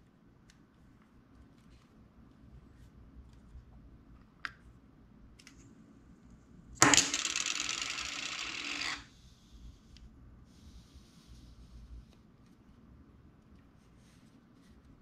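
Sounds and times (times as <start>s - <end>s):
plastic cap rattling on desk: 6.8s - 9.1s.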